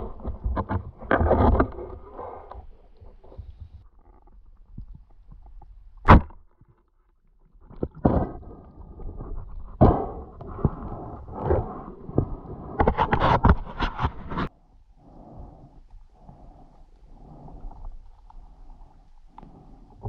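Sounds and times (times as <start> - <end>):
underwater clicks and knocks: 0.0 - 6.8, 7.5 - 14.5.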